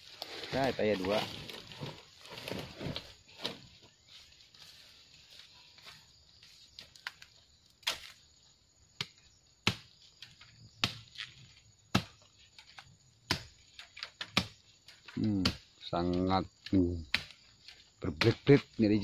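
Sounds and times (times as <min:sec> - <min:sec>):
blade chopping bamboo: 0:09.0 - 0:09.9, 0:10.8 - 0:15.7, 0:17.1 - 0:18.7.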